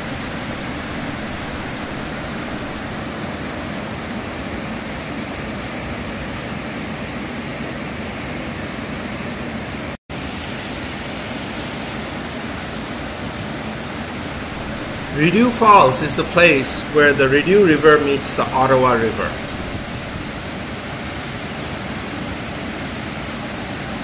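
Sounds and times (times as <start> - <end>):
waterfall rushing: 0.0 - 3.2, 14.3 - 21.4.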